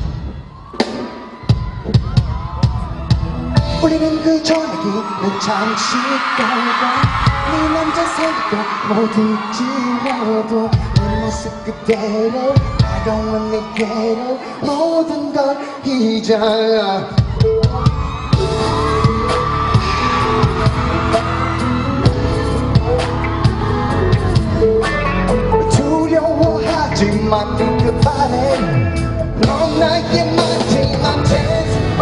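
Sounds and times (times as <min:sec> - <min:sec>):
live pop music with singing: 0:00.0 - 0:32.0
deep bass beat: 0:01.5 - 0:04.6, 0:17.2 - 0:32.0.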